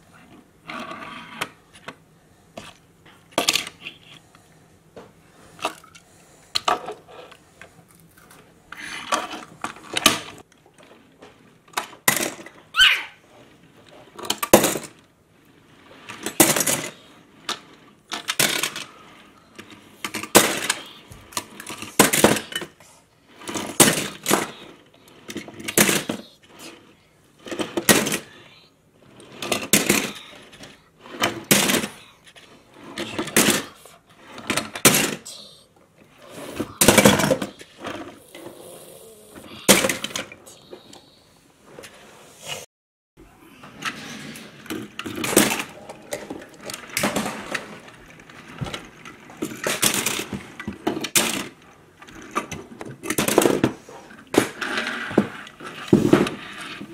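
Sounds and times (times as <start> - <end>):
metal toy cars clacking: 15.9 - 22.8, 23.4 - 28.5, 29.2 - 35.6, 43.8 - 56.9.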